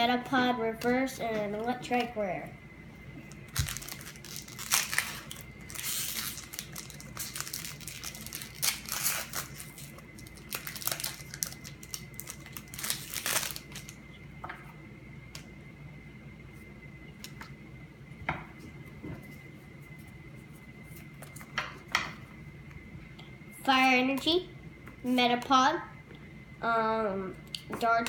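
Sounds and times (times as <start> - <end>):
foil wrapper crinkling and tearing: 3.3 - 14.0.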